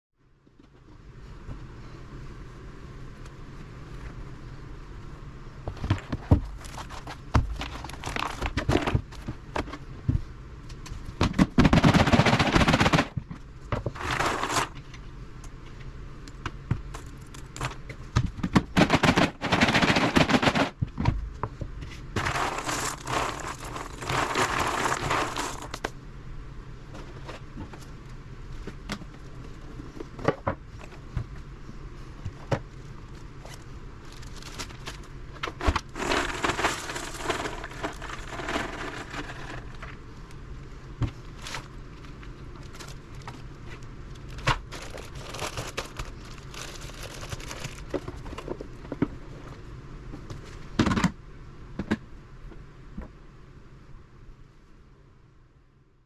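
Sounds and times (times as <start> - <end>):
puzzle mat rubbing: 13.8 - 14.8, 22.0 - 25.8, 35.6 - 39.8
plastic zip bag crinkling: 14.0 - 14.8, 22.2 - 25.8, 34.0 - 35.1, 35.7 - 39.8, 44.2 - 48.0.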